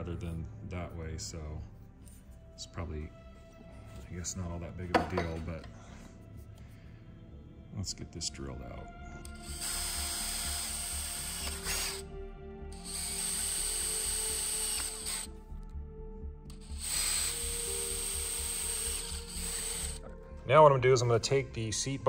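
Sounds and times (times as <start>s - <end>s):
cordless drill motor whine: 9.3s - 12.0s, 12.8s - 15.4s, 16.5s - 20.0s.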